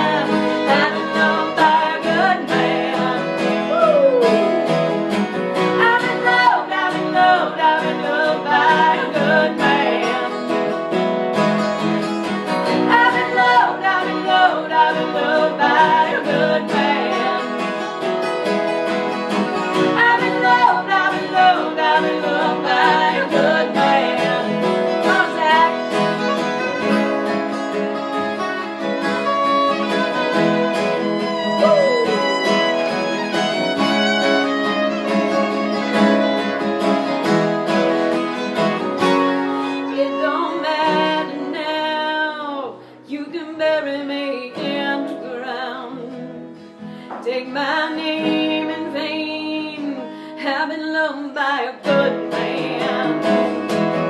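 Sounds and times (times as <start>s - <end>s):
woman singing: 0.0s - 4.5s, 5.7s - 10.6s, 12.6s - 17.9s, 19.8s - 26.8s, 31.4s - 32.4s, 39.6s - 54.0s
fiddle bowed: 0.0s - 7.6s, 11.3s - 41.7s
acoustic guitars strummed: 0.0s - 54.0s.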